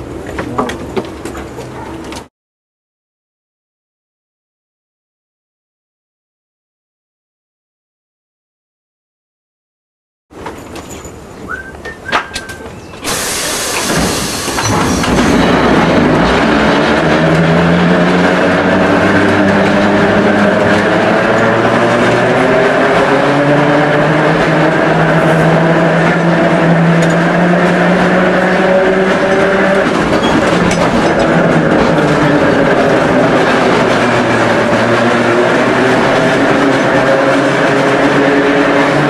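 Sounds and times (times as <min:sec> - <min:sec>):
tram motor hum: 0:00.0 - 0:02.3, 0:10.4 - 0:39.0
tram wheels rattling on rails: 0:00.0 - 0:02.3, 0:10.4 - 0:39.0.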